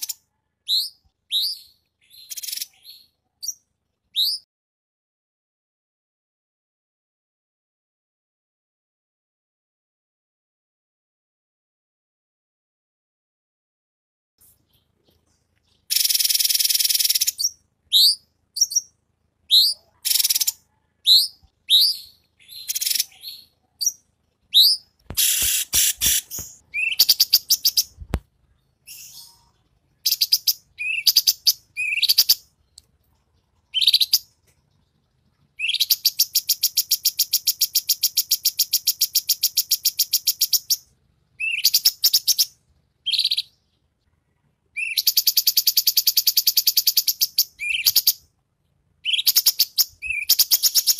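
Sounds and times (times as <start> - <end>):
birds chirping: 0.0 - 4.5, 14.4 - 50.9
bird trilling: 19.5 - 28.0, 28.9 - 32.4, 49.0 - 50.9.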